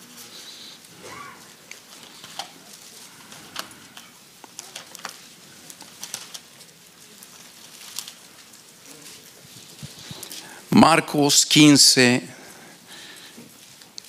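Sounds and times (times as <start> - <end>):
thin pages being turned: 1.5 - 10.4.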